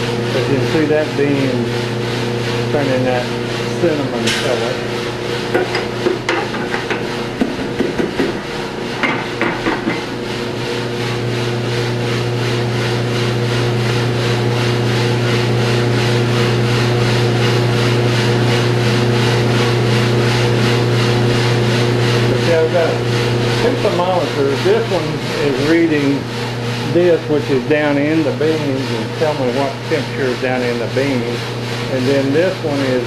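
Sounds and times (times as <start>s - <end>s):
roaster motor and fan hum: 0.0s - 33.0s
sharp knocks and clicks: 5.5s - 8.4s, 9.0s - 10.1s.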